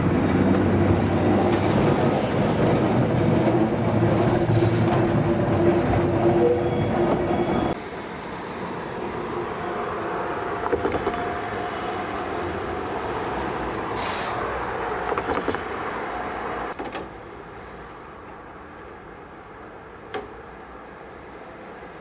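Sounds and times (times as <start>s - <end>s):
tram clunks: 0.0s - 7.8s, 10.5s - 11.6s, 14.8s - 16.0s
tram rumbling: 0.0s - 22.0s
short hiss: 14.0s - 14.4s.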